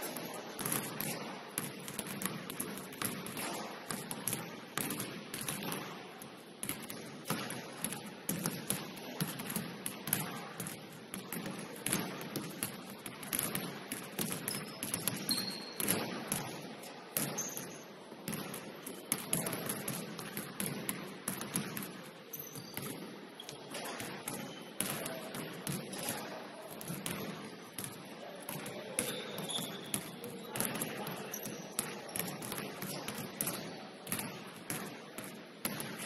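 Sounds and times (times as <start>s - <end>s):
basketballs bouncing on wooden floor: 0.0s - 36.0s
sneaker squeaks: 14.4s - 16.6s, 17.2s - 17.9s, 22.3s - 24.8s, 28.9s - 32.3s.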